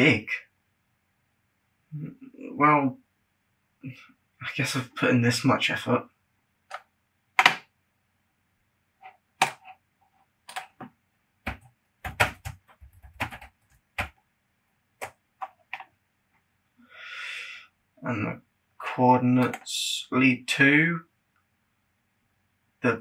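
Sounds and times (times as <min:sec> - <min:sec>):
keyboard typing: 0:07.4 - 0:07.6, 0:09.0 - 0:09.8, 0:10.4 - 0:14.2, 0:15.0 - 0:15.9.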